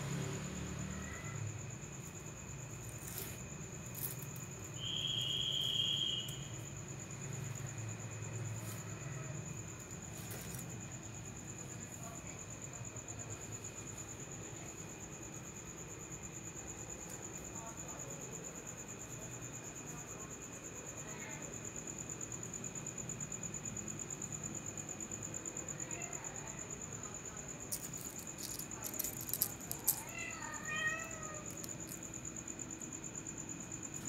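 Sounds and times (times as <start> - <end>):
crickets chirping: 0.0 - 34.0
sharp clicks and rustles: 27.7 - 30.1, 31.4 - 32.1
kitten meowing: 30.0 - 31.5.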